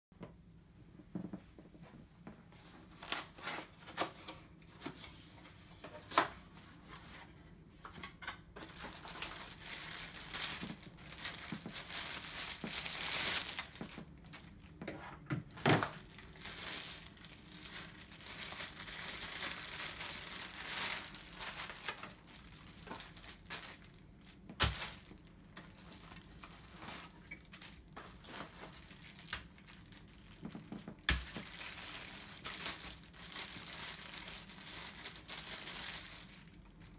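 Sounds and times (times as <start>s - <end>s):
plastic bags crinkling: 8.0s - 14.8s, 15.4s - 36.9s.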